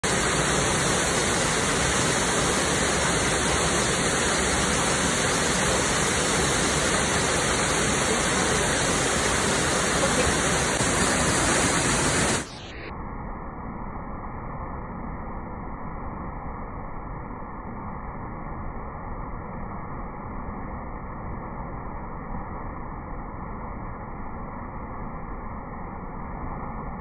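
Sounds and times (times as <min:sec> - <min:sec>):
waterfall roaring: 0:00.0 - 0:12.6.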